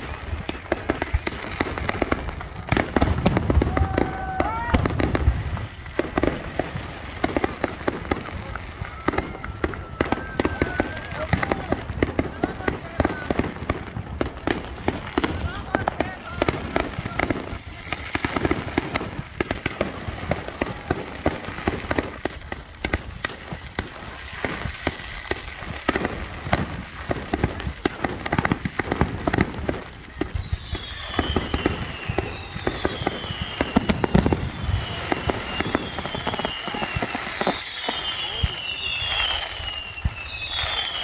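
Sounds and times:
high falling firework whistles: 0.0 - 11.9, 27.5 - 41.0
firework bangs and crackles: 0.0 - 41.0.

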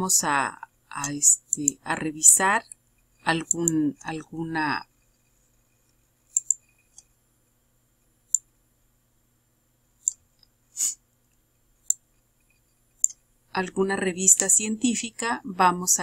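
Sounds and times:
computer mouse clicking: 1.0 - 1.8, 3.4 - 3.8, 6.3 - 7.1, 8.3 - 8.5, 10.0 - 10.2, 11.8 - 13.2.

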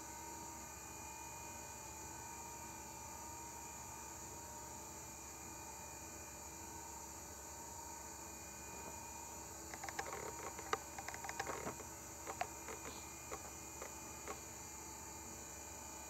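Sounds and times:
hard drive spinning whine: 7.6 - 16.0
hard drive head clicks: 9.8 - 14.4.

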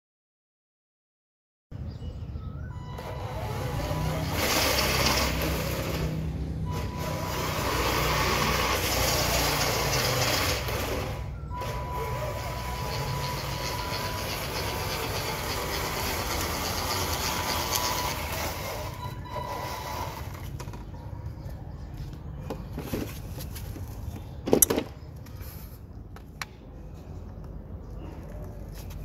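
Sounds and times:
toy truck motor and gear whine: 2.7 - 20.8
tyres rolling on concrete: 3.0 - 21.4.

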